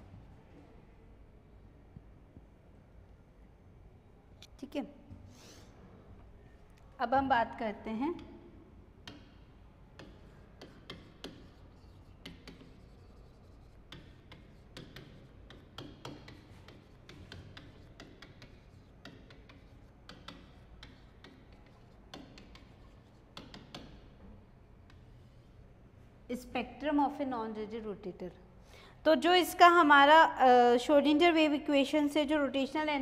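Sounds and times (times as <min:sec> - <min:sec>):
chalk writing on chalkboard: 0:09.1 - 0:24.2, 0:24.8 - 0:25.7.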